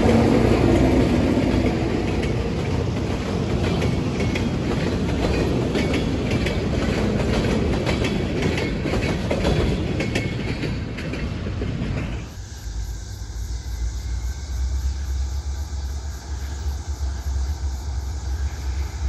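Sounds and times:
train wheels clattering over rail joints: 0.0s - 12.4s.

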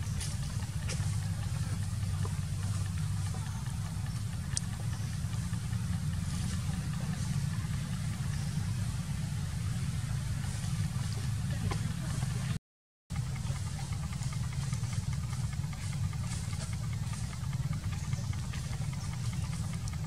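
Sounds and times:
faint ticks: 0.0s - 8.6s
low mechanical rumble: 0.0s - 20.0s.

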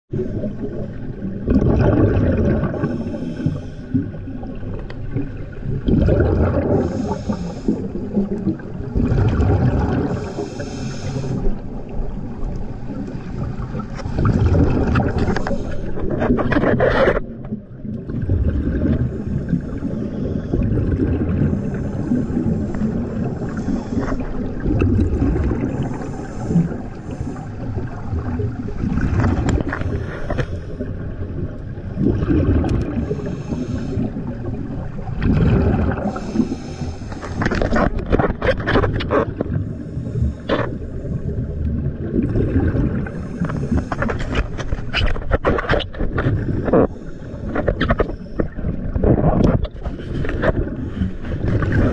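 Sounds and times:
exhaled bubbles bursting: 0.1s - 10.4s, 13.4s - 26.8s, 27.7s - 30.0s, 30.8s - 36.6s, 41.3s - 44.2s, 47.6s - 50.8s, 51.4s - 51.9s
low underwater rumble: 0.1s - 51.9s.

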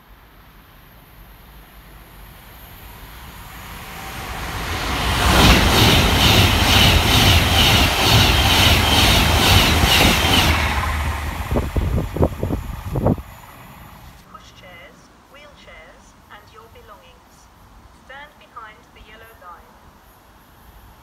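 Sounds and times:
train wheels rushing on rails: 0.0s - 14.2s
train carriages clattering: 4.6s - 14.2s.

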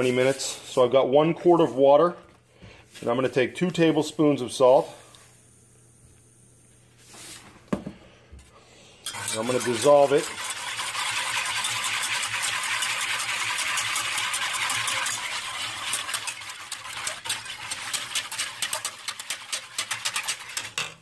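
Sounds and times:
whisk scraping in metal saucepan: 9.0s - 21.0s
whisk wires clicking against pan: 9.0s - 21.0s.

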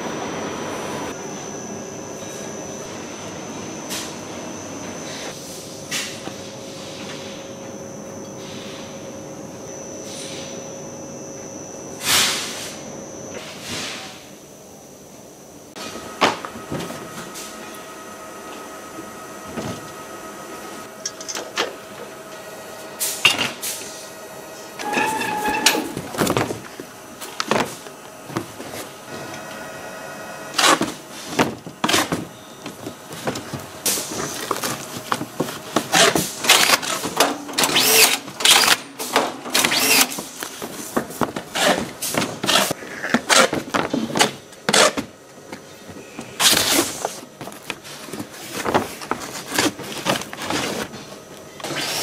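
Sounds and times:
steady machine hum: 0.0s - 52.0s
short machine whine: 15.6s - 27.3s.

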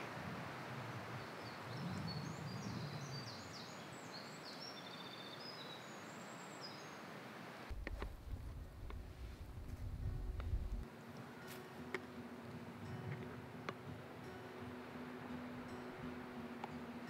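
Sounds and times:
forest background hiss: 0.0s - 17.0s
small birds chirping: 1.0s - 7.1s.

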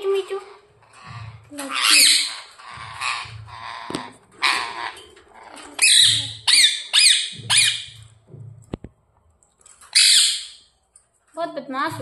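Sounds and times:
parakeets screeching: 0.2s - 8.0s, 9.9s - 10.7s.

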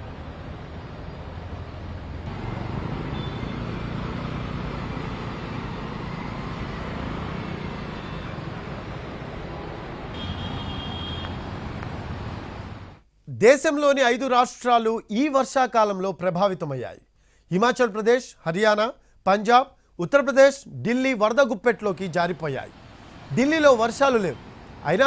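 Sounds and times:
vehicle engines: 0.0s - 13.0s, 21.9s - 25.0s.

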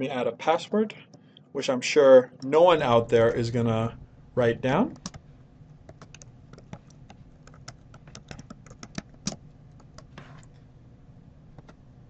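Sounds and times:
keyboard keys clicking: 4.9s - 5.2s, 5.9s - 10.2s.

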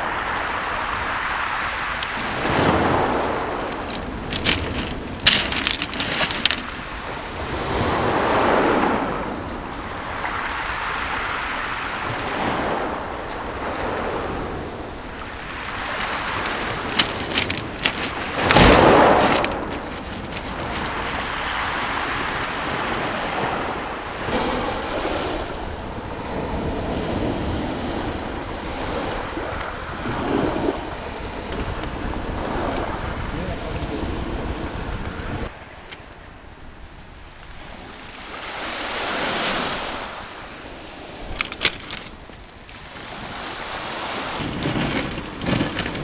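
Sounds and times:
waves washing over shingle: 0.0s - 36.2s, 37.4s - 46.0s
wind buffeting microphone: 0.0s - 46.0s
sharp clicks: 3.1s - 6.7s, 8.5s - 9.3s, 12.1s - 13.0s, 15.2s - 20.8s.

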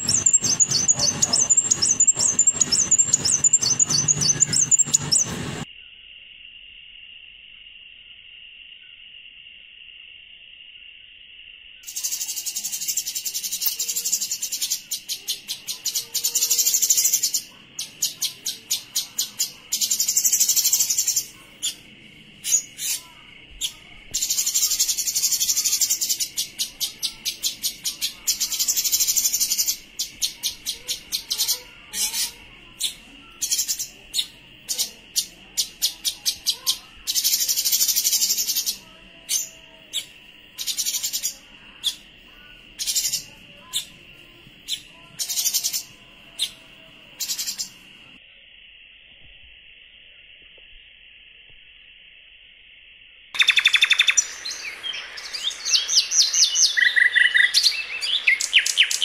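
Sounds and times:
steady high drone: 0.0s - 5.7s
songbird trills: 0.0s - 6.0s, 53.4s - 59.0s
sharp bird chirps: 0.0s - 6.1s, 11.8s - 44.0s, 44.6s - 48.1s, 53.4s - 59.0s.

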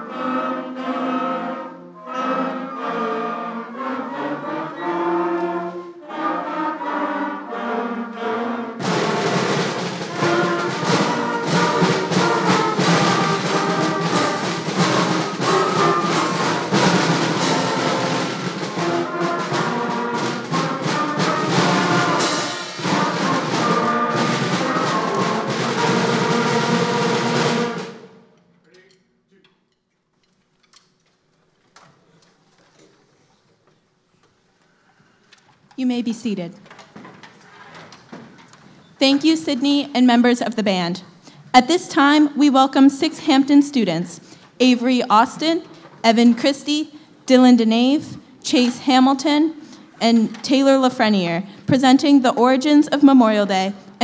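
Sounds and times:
concert band playing: 0.0s - 28.2s
percussion strikes: 8.8s - 29.9s.

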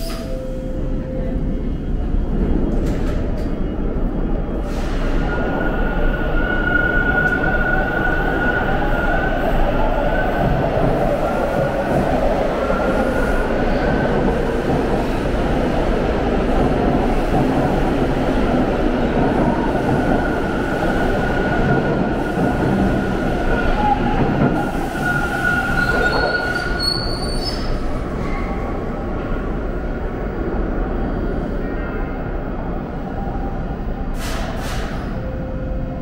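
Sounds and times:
subway train rumbling: 0.0s - 36.0s
train wheel squeal: 24.6s - 28.6s.

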